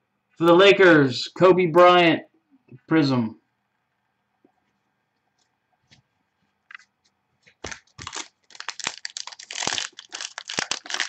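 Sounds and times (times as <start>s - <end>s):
foil pack crinkling: 7.5s - 11.0s.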